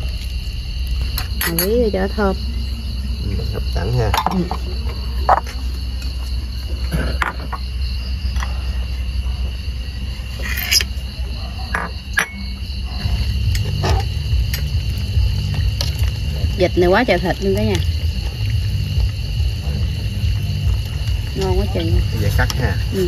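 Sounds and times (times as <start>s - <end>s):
crickets trilling: 0.0s - 23.0s
low hum: 0.0s - 23.0s
bowls and spoons clinking: 4.1s - 4.7s, 11.7s - 12.6s.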